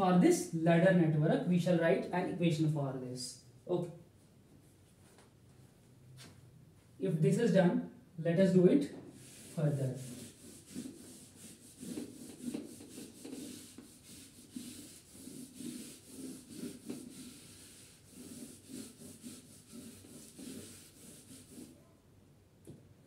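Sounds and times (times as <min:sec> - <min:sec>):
eraser rubbing on whiteboard: 0:09.1 - 0:21.8.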